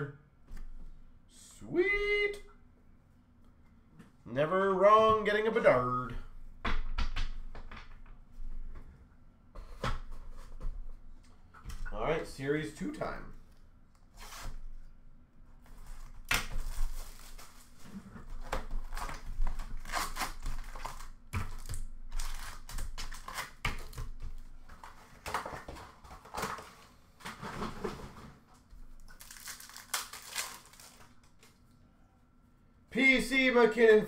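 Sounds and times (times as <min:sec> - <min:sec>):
foil packs rustling: 0:15.8 - 0:28.2, 0:28.9 - 0:31.5
plastic wrap crinkling and tearing: 0:18.4 - 0:24.0, 0:29.0 - 0:31.6
cardboard scraping: 0:25.0 - 0:28.4.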